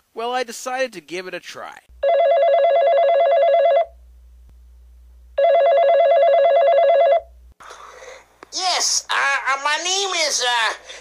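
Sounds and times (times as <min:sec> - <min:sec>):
warbling telephone ring tone: 0:02.0 - 0:04.0, 0:05.4 - 0:07.3
faint low hum: 0:03.8 - 0:05.5.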